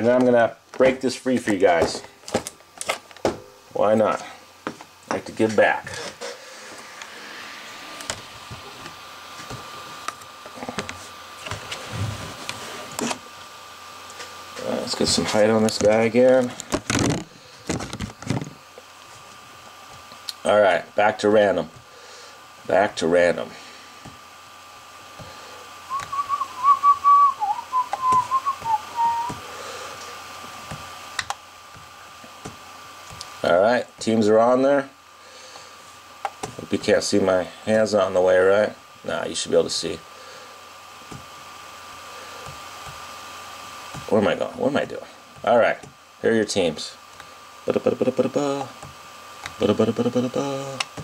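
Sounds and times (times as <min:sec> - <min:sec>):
faint high-pitched hum: 0:00.0 - 0:51.0
person whistling a tune: 0:25.9 - 0:29.4.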